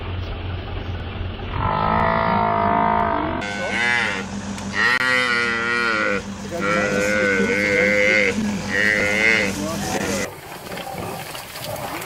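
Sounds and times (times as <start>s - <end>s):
buffalo calf bawling: 1.5s - 10.3s.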